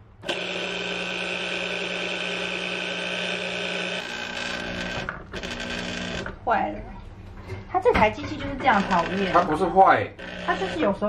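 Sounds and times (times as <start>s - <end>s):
juicer motor humming: 0.2s - 6.5s, 8.7s - 11.0s.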